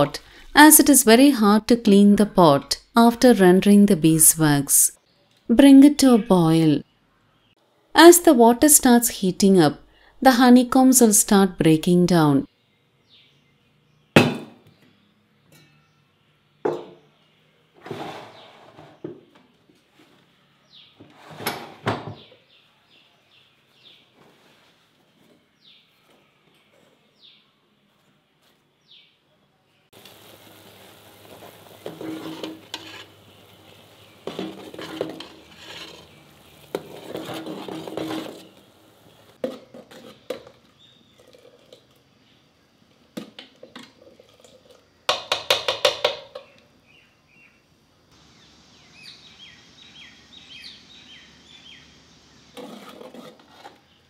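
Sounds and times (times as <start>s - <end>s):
low steady hiss: 29.7s - 35.4s, 45.6s - 52.7s
metal spoon scraping in pot: 31.8s - 33.3s, 34.2s - 38.6s, 39.4s - 40.5s, 52.5s - 54.0s
pot and bowl knocking on wood: 45.1s - 46.5s.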